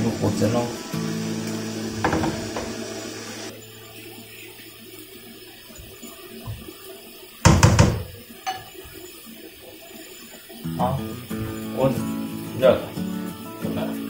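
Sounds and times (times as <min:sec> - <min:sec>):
porcelain bowl set down on counter: 0:02.0 - 0:02.8.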